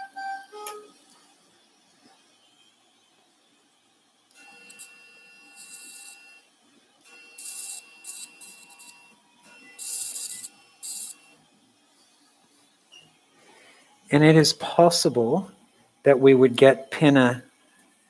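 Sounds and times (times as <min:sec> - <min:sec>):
steady activation tone: 0:04.4 - 0:06.5, 0:07.1 - 0:11.5.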